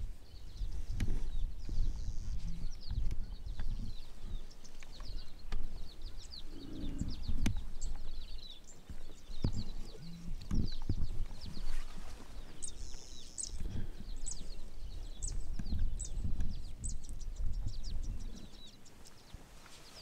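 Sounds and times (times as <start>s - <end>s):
birds chirping: 0.0s - 20.0s
irregular low rumbling: 6.2s - 8.2s.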